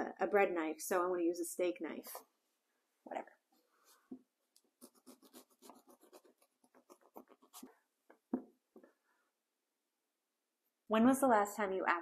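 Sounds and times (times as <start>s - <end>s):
knife sawing through bread crust: 4.8s - 7.7s.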